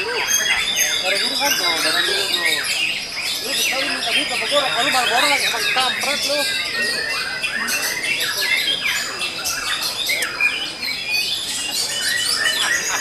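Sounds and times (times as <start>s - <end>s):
birds singing: 0.0s - 13.0s.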